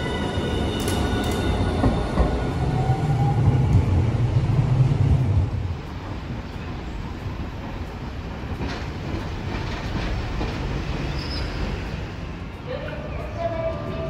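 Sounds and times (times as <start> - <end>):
wheels rumbling on track: 0.1 - 14.0.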